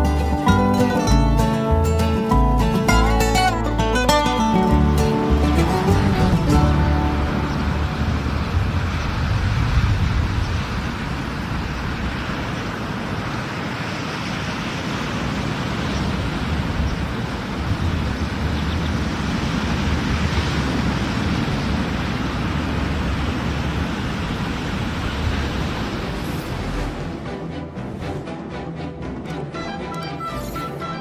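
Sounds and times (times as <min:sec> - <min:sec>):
surf on a beach: 0:00.0 - 0:28.2
wind on microphone: 0:05.3 - 0:27.3.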